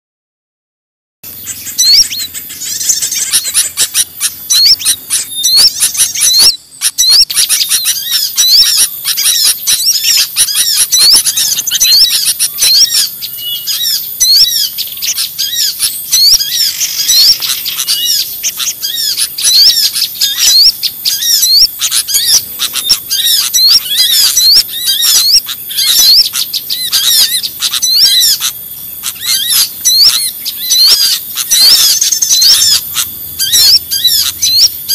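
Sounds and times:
songbirds chirping: 1.2 - 34.9.

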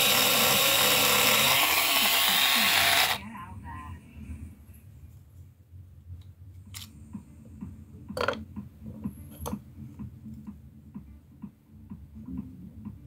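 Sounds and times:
faint low hum: 3.0 - 13.0.

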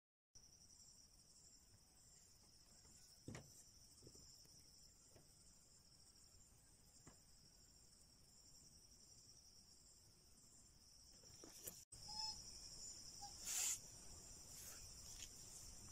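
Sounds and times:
insects chirring: 0.4 - 15.9
soft knocks: 3.2 - 4.2.

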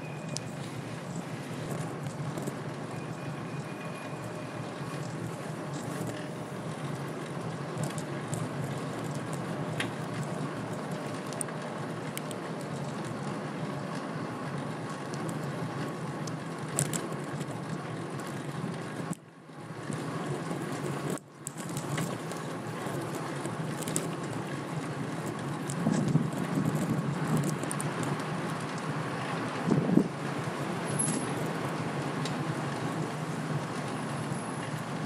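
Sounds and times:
bicycle tyres on road: 0.0 - 35.0
wind over microphone: 23.0 - 30.8.

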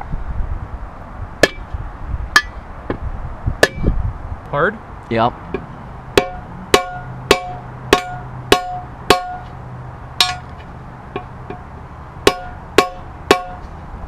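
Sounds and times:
hammer striking metal: 1.4 - 1.7, 6.2 - 9.5, 10.2 - 10.6, 12.2 - 13.7.

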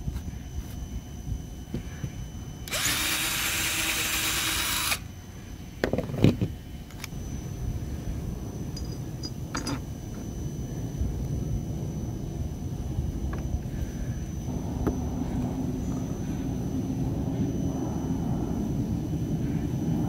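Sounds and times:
power drill boring fiberglass: 2.6 - 5.0.

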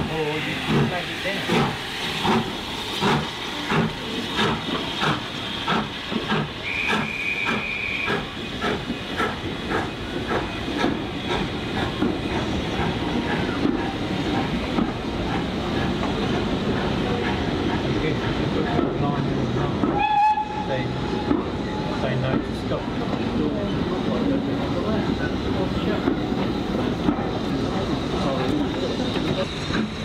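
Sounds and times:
hiss of steam: 0.0 - 19.9
train coaches rhythmic clatter: 0.0 - 30.0
high train whistle: 6.6 - 8.6, 19.9 - 21.2.

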